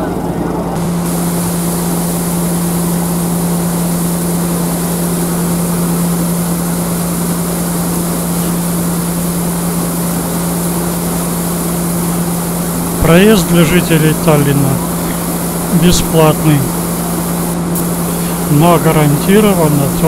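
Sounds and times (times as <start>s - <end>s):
wind: 0.0s - 0.9s
ferry engine humming: 0.0s - 20.0s.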